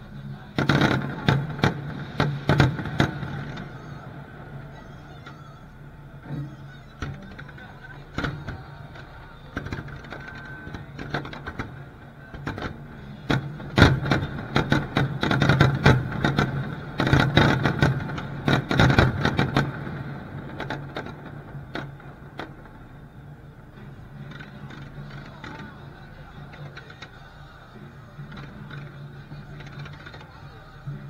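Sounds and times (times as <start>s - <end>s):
fireworks bangs and crackles: 0.5s - 23.2s.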